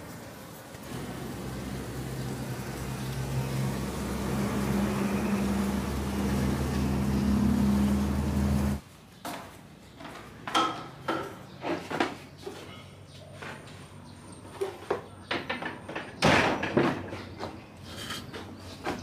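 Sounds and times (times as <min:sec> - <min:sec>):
bees buzzing: 0:00.8 - 0:08.8.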